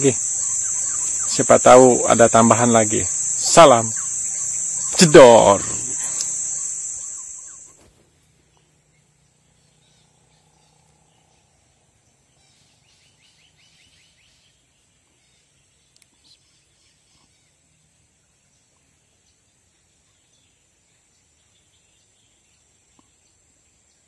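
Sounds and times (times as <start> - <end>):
bird trill: 0.0 - 7.8
high insect drone: 0.0 - 7.8
faint outdoor ambience: 0.0 - 24.0
faint ticks: 2.9 - 7.6.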